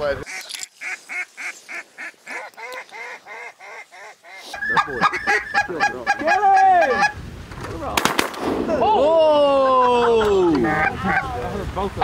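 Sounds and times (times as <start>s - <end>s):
duck calls blown: 0.3s - 7.2s.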